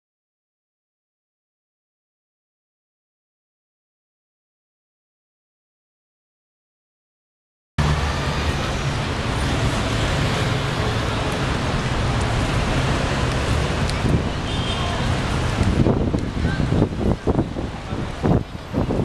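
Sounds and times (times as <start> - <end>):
city traffic rumble: 7.8 - 19.0.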